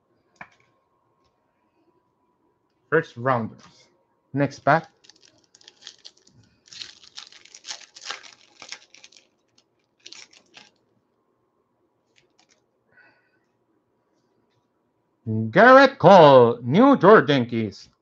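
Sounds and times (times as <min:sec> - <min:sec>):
foil wrapper crinkling: 0:04.7 - 0:10.8, 0:12.1 - 0:12.6.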